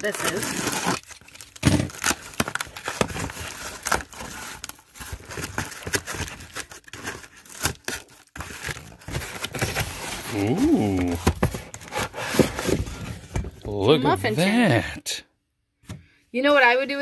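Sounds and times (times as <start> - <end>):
box cutter slitting tape: 0.0 - 1.2
cardboard tearing: 0.0 - 13.3.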